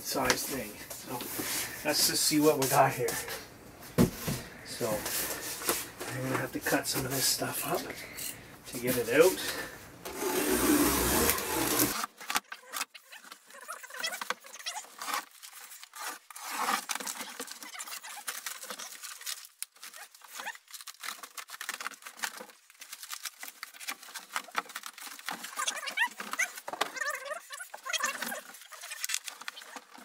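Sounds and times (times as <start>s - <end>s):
utility knife cutting cardboard: 10.1s - 12.1s
cardboard scratching and rustling: 10.1s - 30.0s.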